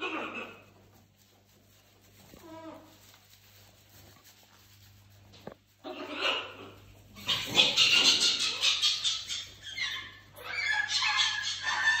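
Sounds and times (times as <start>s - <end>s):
parrots screeching: 5.8s - 12.0s.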